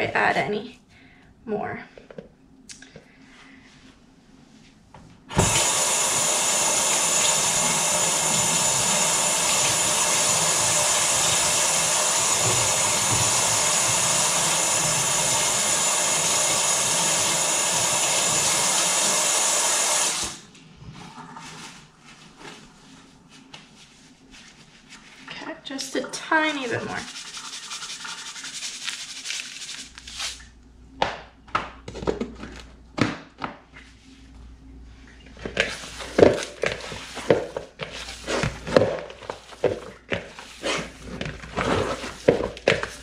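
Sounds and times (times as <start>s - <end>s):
water running into steel sink: 5.3s - 20.4s
hands rustling paper towel: 21.5s - 25.4s, 26.4s - 30.5s.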